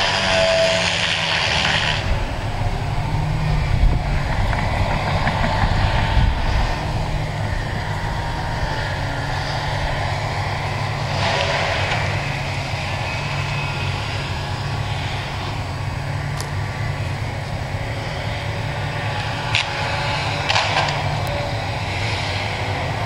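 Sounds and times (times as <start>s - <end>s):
hissing spray of grinding: 0.0s - 2.1s
diesel engine running under load: 0.0s - 23.0s
stump grinder chewing wood: 0.0s - 23.0s.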